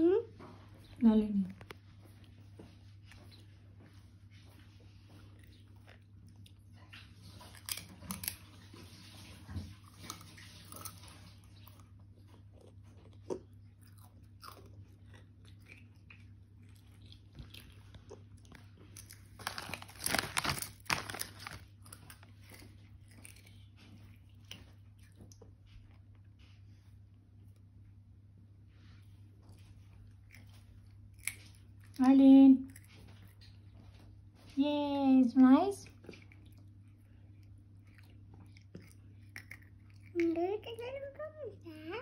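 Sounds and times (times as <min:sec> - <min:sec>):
faint low hum: 0:00.0 - 0:42.0
child crunching crisps: 0:07.3 - 0:08.7, 0:12.6 - 0:24.6, 0:30.1 - 0:32.0, 0:36.0 - 0:40.8.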